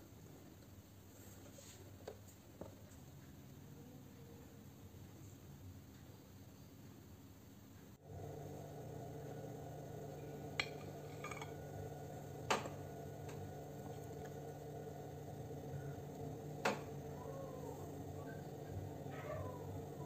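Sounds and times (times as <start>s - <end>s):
steady low hum: 8.0s - 20.0s.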